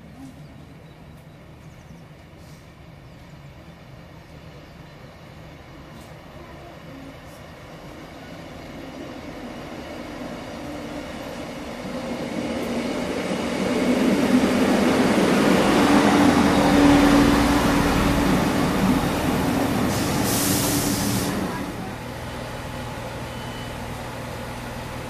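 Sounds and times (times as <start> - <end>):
diesel train engine and wheels: 0.0 - 25.0
short hiss: 19.9 - 21.5.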